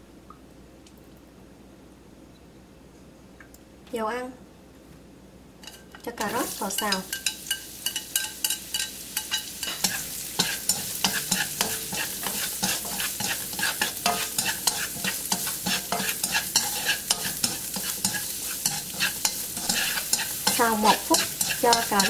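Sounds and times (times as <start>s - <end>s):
spatula scraping and tapping pan: 5.6s - 22.0s
vegetables sizzling in oil: 5.6s - 22.0s.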